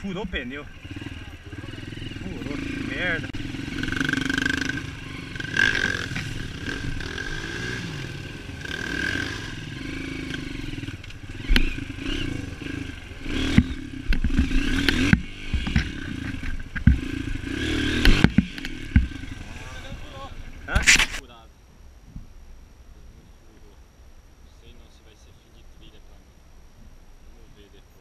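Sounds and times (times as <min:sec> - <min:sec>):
dirt bike engine running: 0:00.0 - 0:21.2
knocks and clattering over brush: 0:13.5 - 0:17.1, 0:18.0 - 0:19.2.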